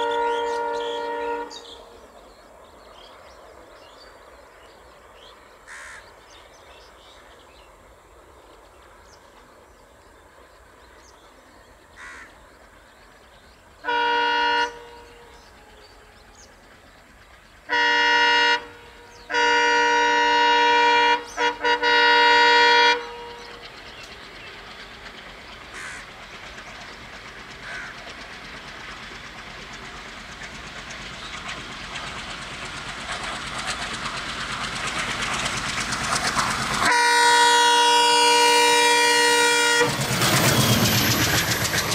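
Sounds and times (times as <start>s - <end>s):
locomotive air horn: 0.0s - 1.8s, 13.8s - 16.2s, 17.7s - 23.6s, 36.8s - 40.1s
train running noise: 0.0s - 41.9s.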